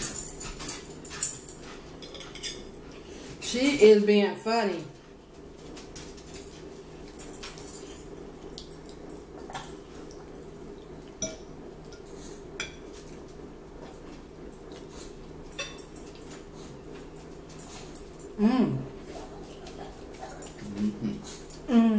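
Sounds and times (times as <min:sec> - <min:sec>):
forks clinking on plates: 0:00.0 - 0:02.7, 0:15.5 - 0:16.4
steady low hum: 0:00.0 - 0:21.9.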